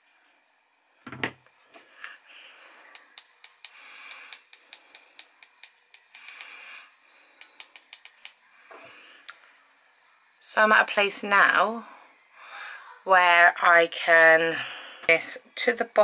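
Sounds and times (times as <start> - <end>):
tool set down on table: 1.1 - 1.4.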